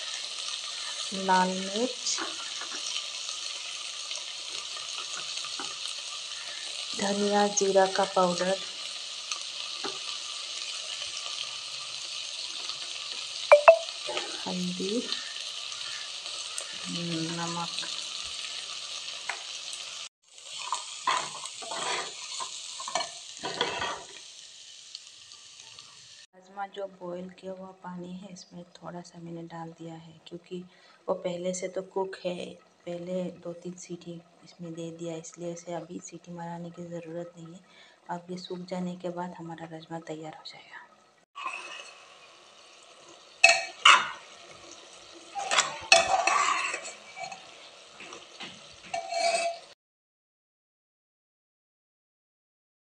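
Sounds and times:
steady sizzle: 0:00.0 - 0:49.8
metal spoon scraping pot: 0:20.6 - 0:24.1, 0:41.4 - 0:42.0, 0:45.3 - 0:47.6, 0:48.9 - 0:49.7
spatula clanking on pot: 0:43.4 - 0:44.2, 0:45.4 - 0:47.4, 0:48.0 - 0:49.7.

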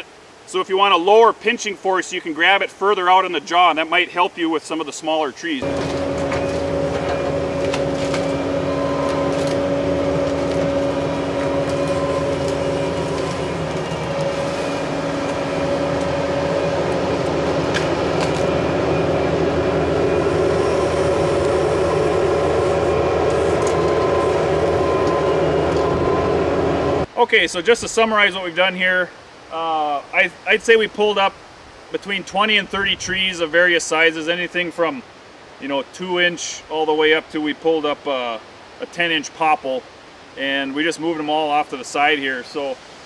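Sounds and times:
tree roots ripping: 0:05.6 - 0:18.8
diesel engine running under load: 0:05.6 - 0:27.1.

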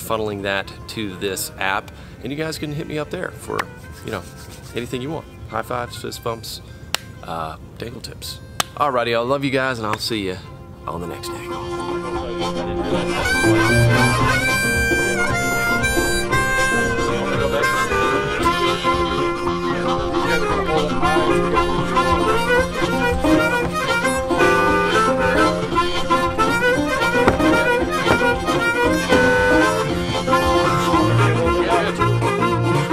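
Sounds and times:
harmonica-led tune: 0:00.4 - 0:07.3, 0:10.2 - 0:32.9.

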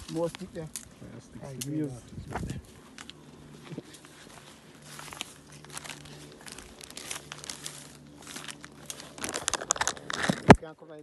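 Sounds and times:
phone handling rustling: 0:05.1 - 0:10.6.

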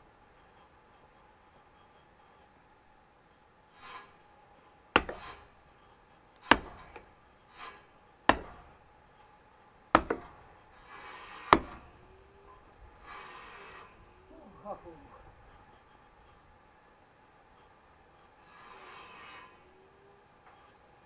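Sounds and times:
split wood knocking: 0:05.0 - 0:05.4
axe chopping firewood: 0:05.0 - 0:05.5, 0:06.4 - 0:08.8, 0:10.0 - 0:10.4, 0:11.5 - 0:11.9.

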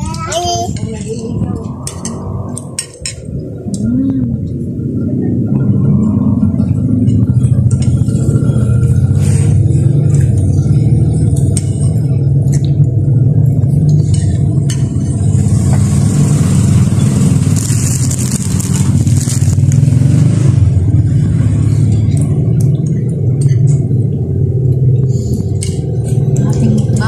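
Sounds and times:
low rumble: 0:00.0 - 0:27.0
plastic bag crinkling: 0:17.5 - 0:19.8.

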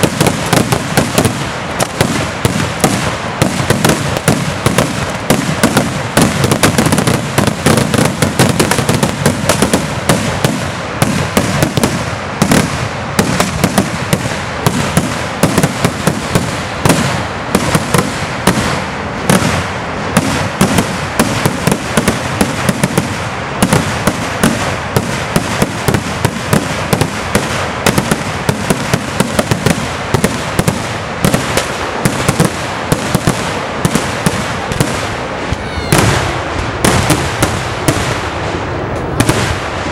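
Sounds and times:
firecracker bangs and cracks: 0:00.0 - 0:39.9.

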